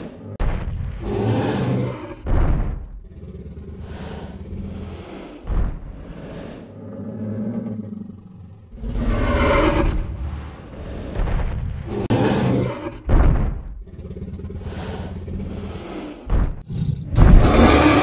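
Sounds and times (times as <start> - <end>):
deep rumbling dinosaur roar: 0.0 - 18.0
heavy thump: 13.0 - 13.8.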